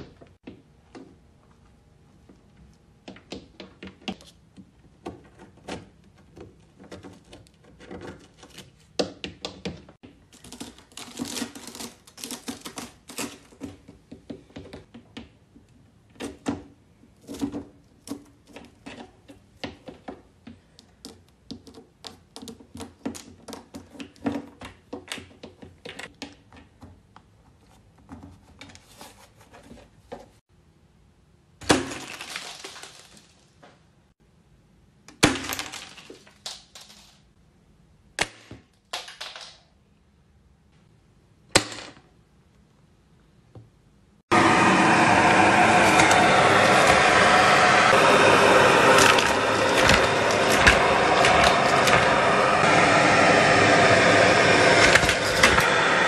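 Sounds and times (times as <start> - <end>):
crunchy snacks being crushed: 31.8 - 33.3.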